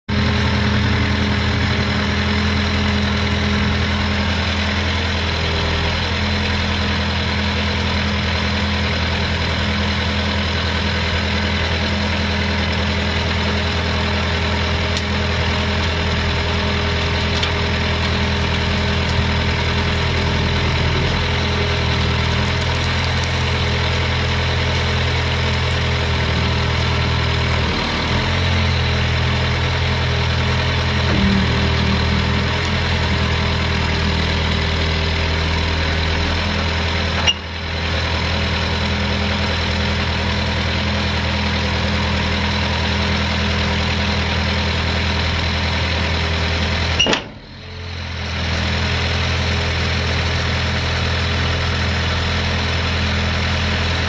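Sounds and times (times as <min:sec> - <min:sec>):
diesel engine idling: 0:00.0 - 0:54.0.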